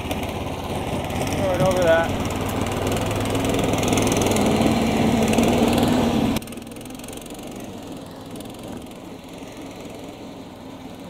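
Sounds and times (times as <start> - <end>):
small gasoline engine running: 0.0 - 11.0.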